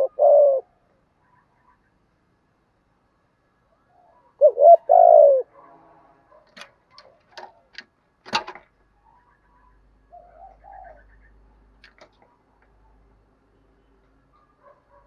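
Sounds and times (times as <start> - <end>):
dove cooing: 0.0 - 1.8, 3.9 - 5.6, 9.6 - 11.4.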